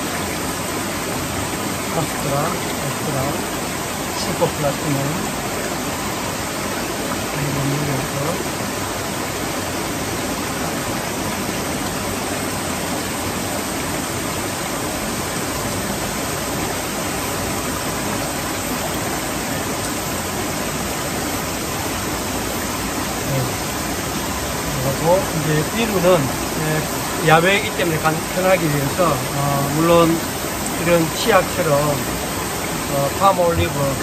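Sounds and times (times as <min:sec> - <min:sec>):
stream rushing over rocks: 0:00.0 - 0:34.0.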